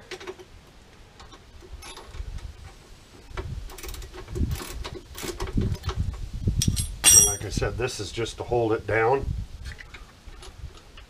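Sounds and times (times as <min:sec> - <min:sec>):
metal clicks and rattles: 0:06.6 - 0:07.4.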